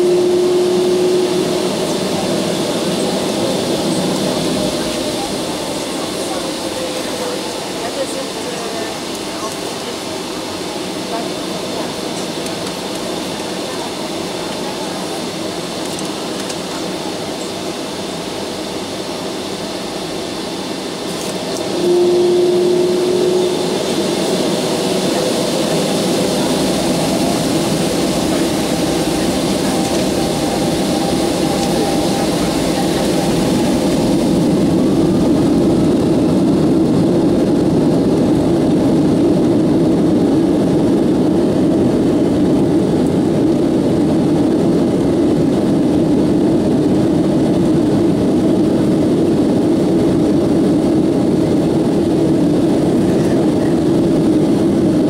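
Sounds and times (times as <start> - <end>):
short steady tone: 0.0 - 7.6, 21.6 - 35.5
jet engines running: 0.0 - 55.0.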